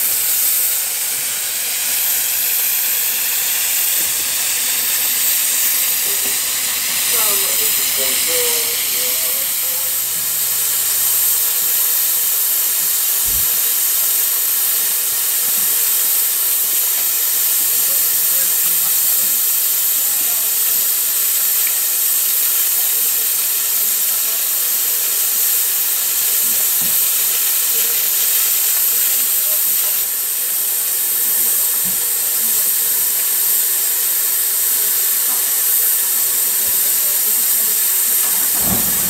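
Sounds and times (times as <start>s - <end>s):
steam locomotive hissing steam: 0.0s - 39.0s.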